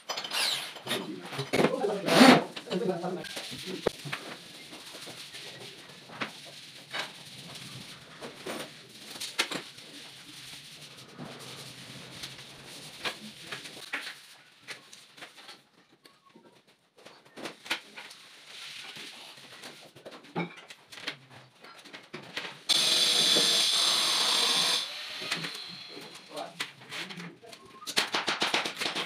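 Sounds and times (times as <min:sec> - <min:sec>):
loud high-pitched noise: 0:22.7 - 0:26.3.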